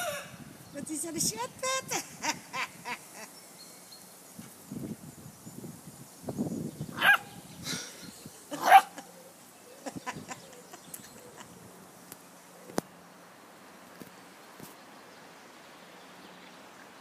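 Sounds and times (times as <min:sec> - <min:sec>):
high-pitched dog barks: 0:07.0 - 0:07.3, 0:08.6 - 0:09.0.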